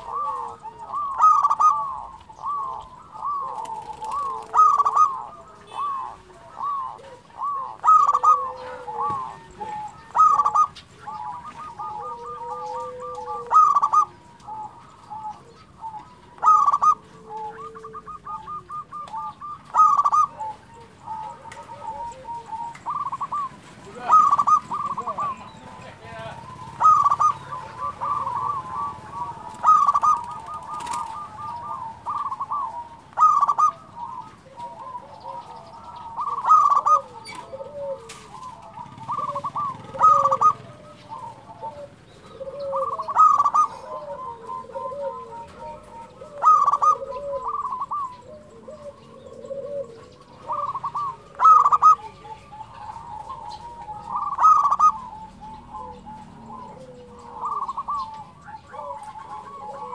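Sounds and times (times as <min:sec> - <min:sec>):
dove cooing: 0:00.0 - 0:59.9.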